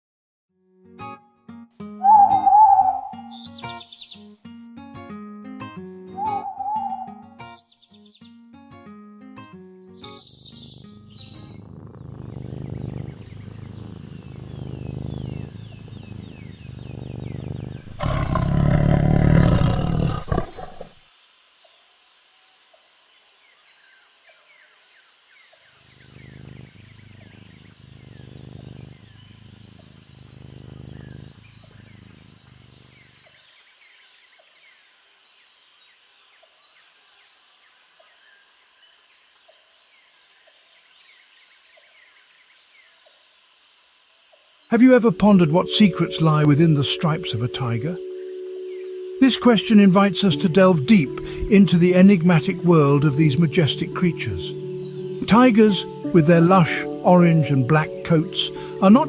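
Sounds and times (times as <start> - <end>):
faint high chirping: 2.0 - 4.3, 6.1 - 8.3, 12.5 - 20.9, 25.4 - 34.8, 44.0 - 59.0
tiger growling and roaring: 10.6 - 21.0, 25.8 - 33.5, 49.2 - 54.4.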